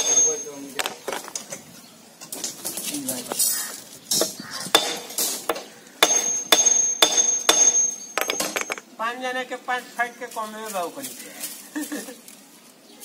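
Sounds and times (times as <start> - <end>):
hammer striking metal wire: 0.0 - 0.9, 4.1 - 8.8
high metallic ringing: 0.0 - 1.1, 4.1 - 8.9.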